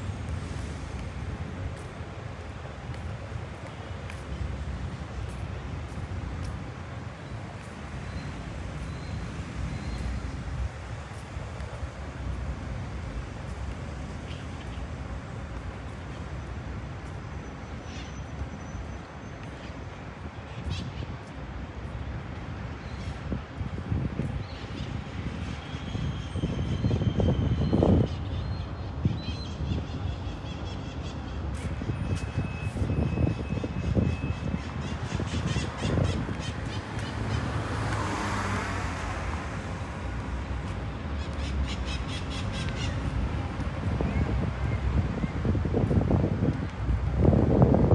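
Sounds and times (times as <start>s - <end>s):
low rumble of road traffic: 0.0s - 47.9s
vehicle passing: 35.8s - 41.6s.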